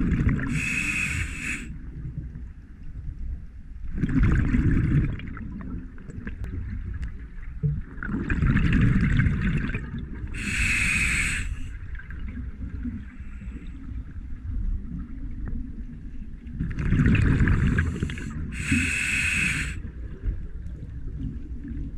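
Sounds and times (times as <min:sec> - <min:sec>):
exhaled bubbles rumbling: 0:00.0 - 0:03.2, 0:03.8 - 0:21.9
regulator hissing: 0:00.5 - 0:01.7, 0:10.4 - 0:11.6, 0:18.6 - 0:19.8.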